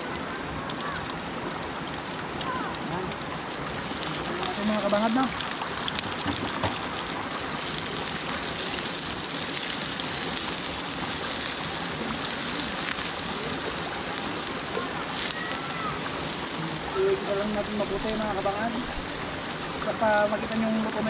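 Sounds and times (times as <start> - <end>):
food sizzling in hot oil: 2.4 - 21.0.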